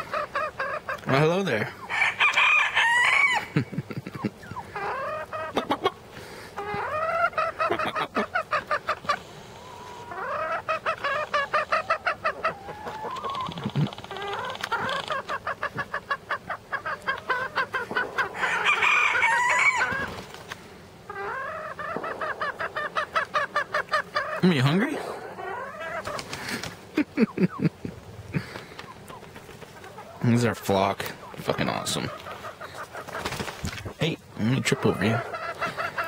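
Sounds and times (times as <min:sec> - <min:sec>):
chickens clucking: 0:00.0 - 0:36.0
rooster crowing: 0:01.9 - 0:03.6, 0:18.3 - 0:20.1.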